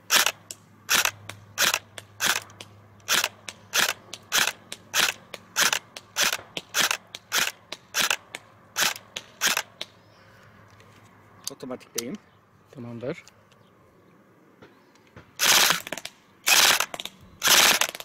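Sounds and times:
airsoft gun shots: 15.4 - 18.0.

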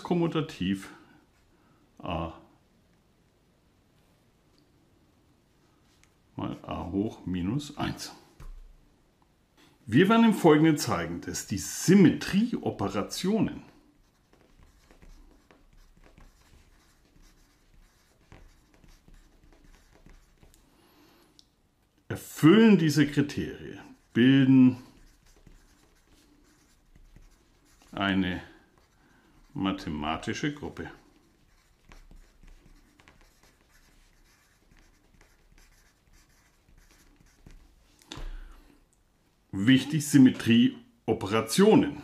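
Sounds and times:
pencil scratching on paper: 12.9 - 20.6, 22.8 - 37.8.

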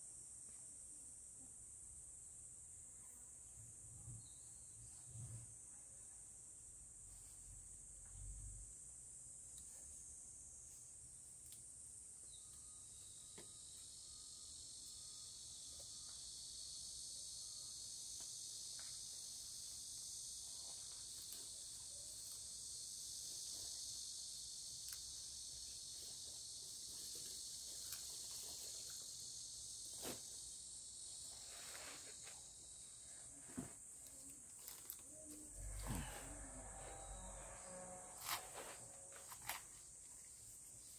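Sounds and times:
insects shrilling: 12.3 - 33.2.

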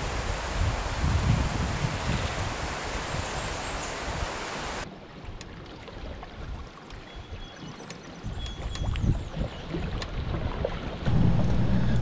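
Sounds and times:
wind hiss: 0.0 - 4.8
paddle strokes dipping and dripping: 4.8 - 12.0.

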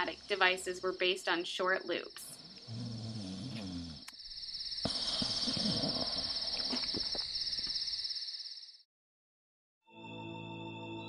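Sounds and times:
crickets chirring: 0.0 - 8.8.

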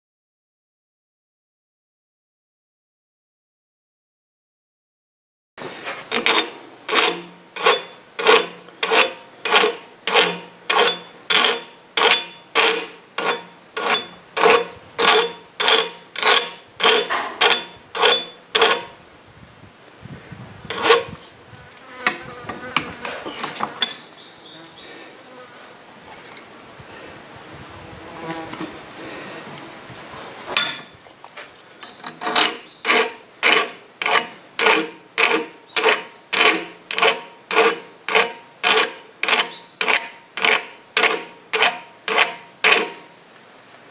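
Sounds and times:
soft uneven scraping: 5.6 - 18.8, 20.1 - 23.9
file rasping on steel: 5.8 - 19.0, 20.7 - 21.2, 22.0 - 24.1, 32.1 - 43.1.

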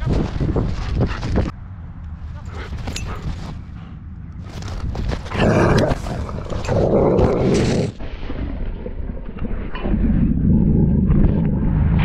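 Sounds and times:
dogs growling: 5.1 - 8.0.

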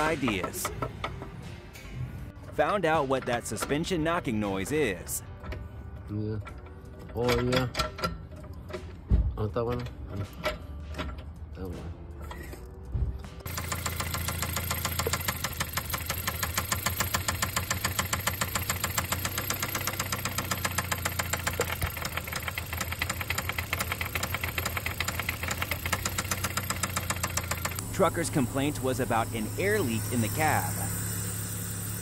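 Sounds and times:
rapid engine knock: 13.5 - 27.8
car engine running: 13.5 - 32.0.

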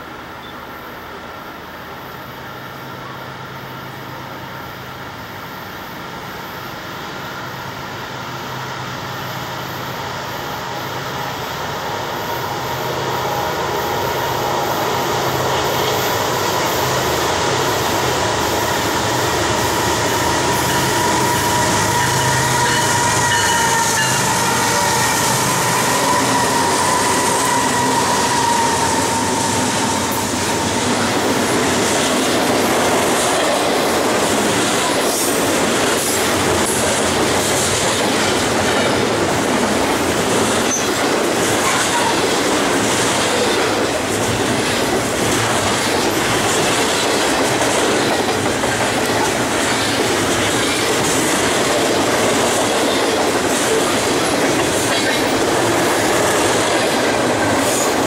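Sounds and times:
diesel locomotive engine hum: 0.0 - 58.0
train wheels on rails: 0.0 - 58.0
steady high-pitched tone: 9.1 - 32.9.

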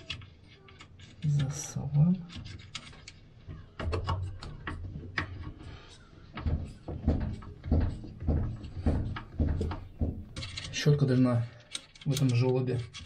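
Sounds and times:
plastic clicks and knocks: 0.0 - 13.0
dull knocks: 6.4 - 10.6.

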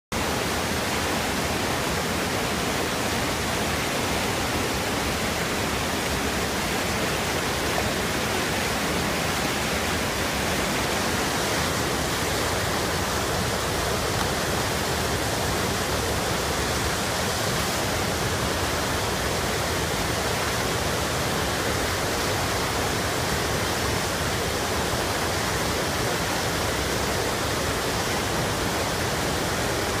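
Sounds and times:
waterfall and rapids rushing: 0.2 - 30.0.

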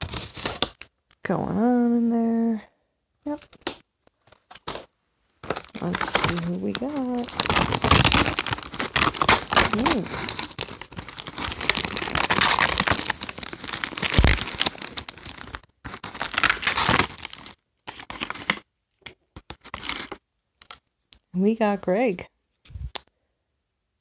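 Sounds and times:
packaging crinkling and tearing: 0.0 - 1.0, 3.3 - 20.8.

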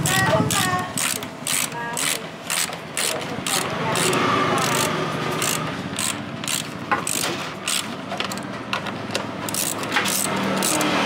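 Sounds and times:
ratchet wrench clicking: 0.1 - 8.5, 9.5 - 11.0.

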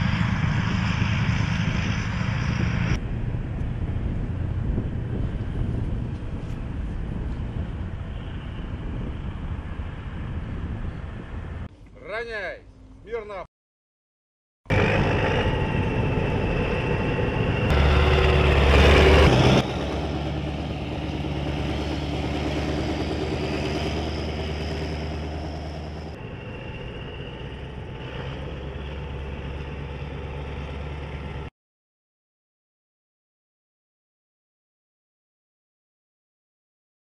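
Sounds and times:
heavy truck engine running: 14.7 - 31.5.

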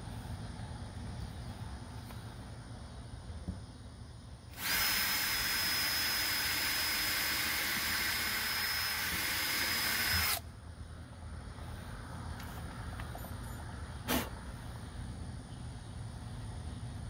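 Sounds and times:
power drill drilling plastic: 4.6 - 10.4.

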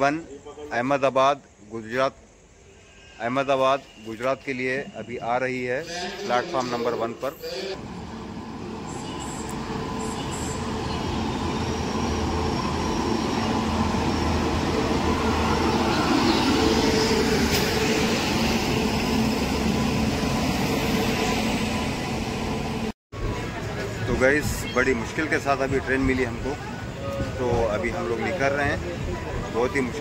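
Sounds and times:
electric locomotive hum: 5.8 - 30.0
wheels rumbling on rails: 7.8 - 30.0.

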